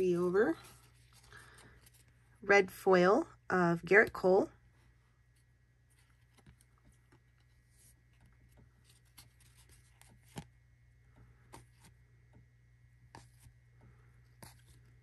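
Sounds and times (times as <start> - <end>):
trading cards being handled: 5.3 - 10.5.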